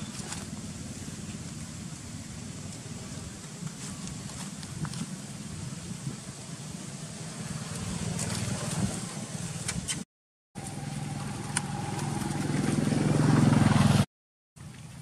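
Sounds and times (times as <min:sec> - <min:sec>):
motor vehicle engine running: 0:00.0 - 0:09.8, 0:10.6 - 0:15.0.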